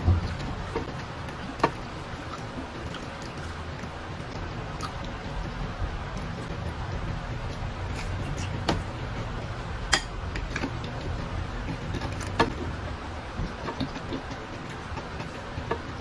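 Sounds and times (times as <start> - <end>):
steady low hum: 0.0 - 16.0
person chewing: 0.2 - 5.6.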